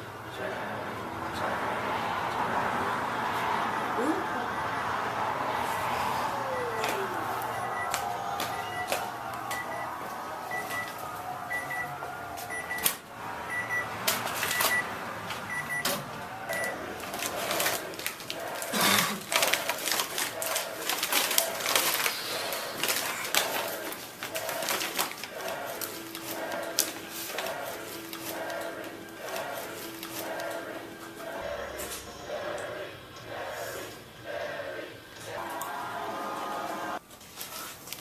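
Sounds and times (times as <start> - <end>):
microwave oven beeps: 7.5 - 14.9, 15.5 - 16.8
paper bag tearing and crinkling: 17.0 - 28.4.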